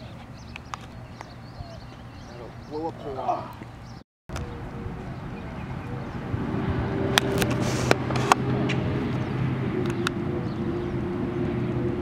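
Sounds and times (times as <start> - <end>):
vehicle motor drone: 4.3 - 12.0.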